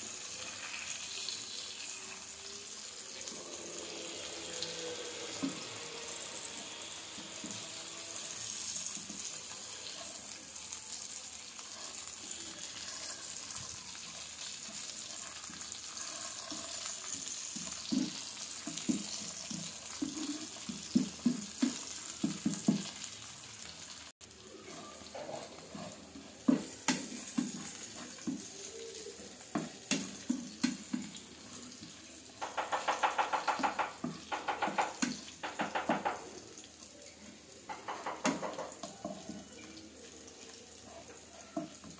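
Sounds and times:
fish and onions sizzling in oil: 0:00.0 - 0:41.9
wooden spatula scraping pan: 0:11.6 - 0:23.0, 0:24.6 - 0:28.7.

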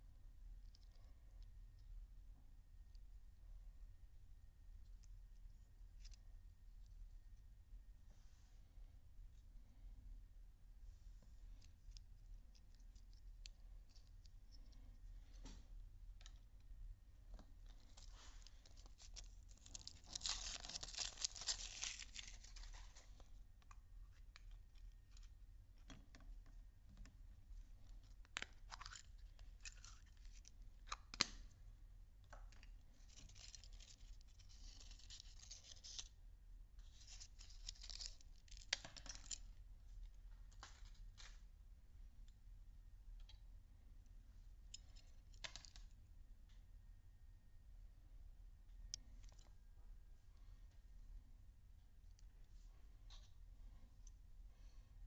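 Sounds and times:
plastic packet tearing: 0:18.8 - 0:22.7.

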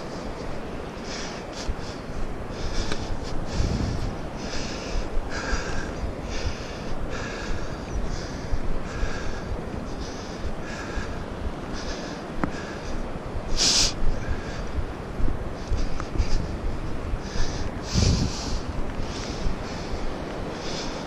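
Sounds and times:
heavy breathing: 0:01.0 - 0:21.0
low microphone rumble: 0:01.5 - 0:11.9, 0:12.5 - 0:20.3.

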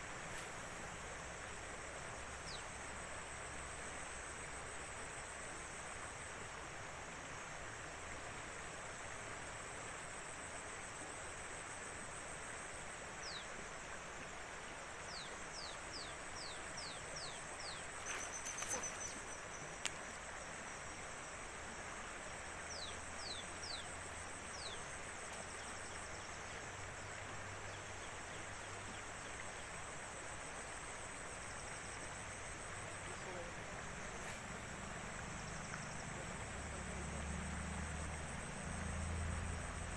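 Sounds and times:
constant hiss: 0:00.0 - 0:39.9
high pulsing insect trill: 0:09.6 - 0:39.9.

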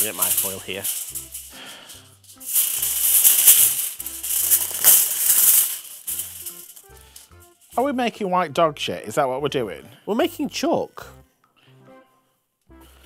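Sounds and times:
aluminium foil crinkling: 0:00.0 - 0:07.8
background music: 0:00.0 - 0:13.0.

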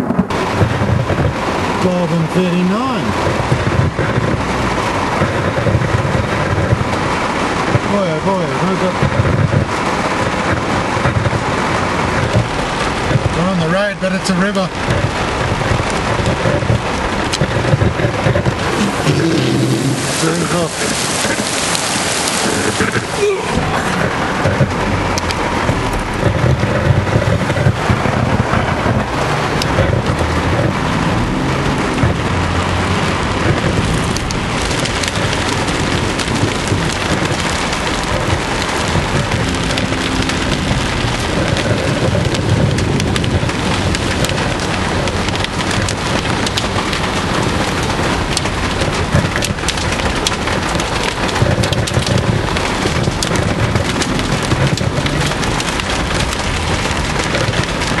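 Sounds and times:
heavy rain on vehicle roof: 0:00.0 - 0:58.0
low rumble: 0:14.6 - 0:58.0.

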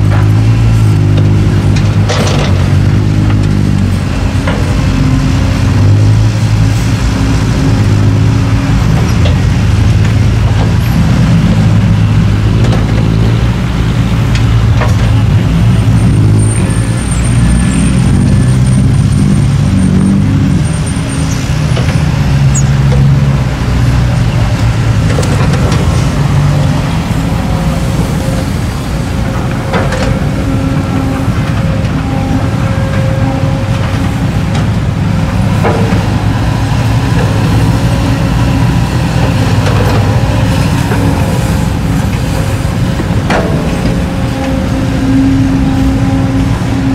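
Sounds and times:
heavy diesel engines droning: 0:00.0 - 0:46.9.

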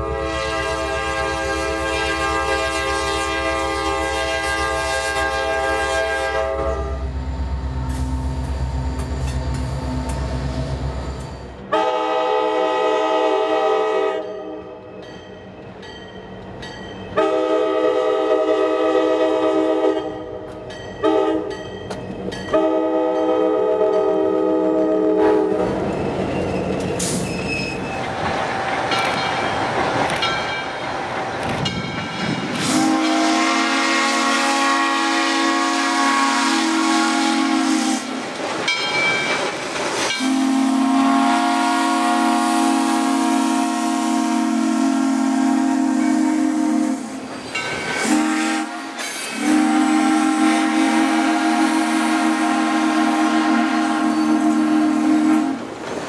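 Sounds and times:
locomotive air horn: 0:00.0 - 0:07.1, 0:11.6 - 0:14.8, 0:17.2 - 0:20.3, 0:21.0 - 0:21.5, 0:22.5 - 0:25.7, 0:32.6 - 0:38.2, 0:40.1 - 0:47.3, 0:48.0 - 0:55.7
locomotive engine droning: 0:00.0 - 0:13.8
train wheels clattering over rails: 0:25.6 - 0:32.8, 0:38.2 - 0:40.4.

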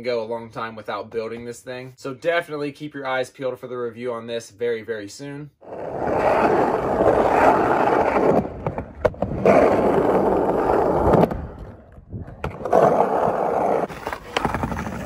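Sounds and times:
skateboard wheels rolling on concrete: 0:05.6 - 0:15.0.

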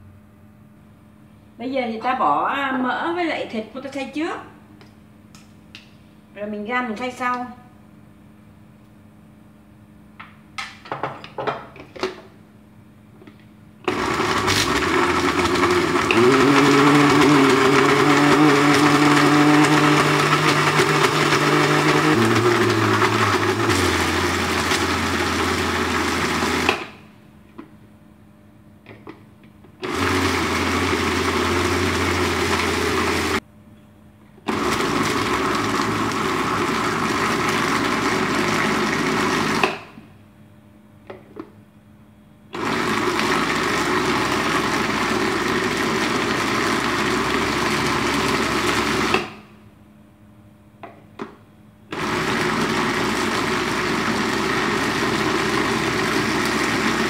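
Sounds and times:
electric blender grinding meat: 0:13.8 - 0:27.0, 0:29.8 - 0:33.4, 0:34.5 - 0:39.9, 0:42.6 - 0:49.4, 0:51.9 - 0:57.0
blender jar and lid clicks: 0:39.5 - 0:39.9.

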